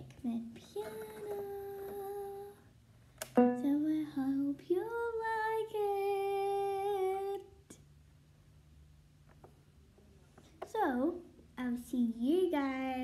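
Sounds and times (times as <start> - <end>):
girl singing wordless tune: 0.0 - 2.8, 3.4 - 7.8, 10.7 - 13.0.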